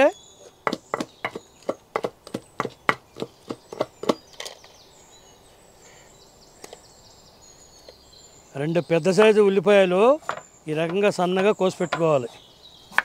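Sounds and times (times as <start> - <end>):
pestle pounding in stone mortar: 0.6 - 4.2.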